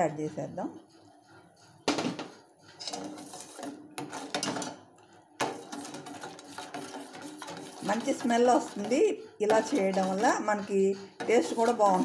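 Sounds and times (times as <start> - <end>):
spoon scraping in pan: 1.4 - 12.0.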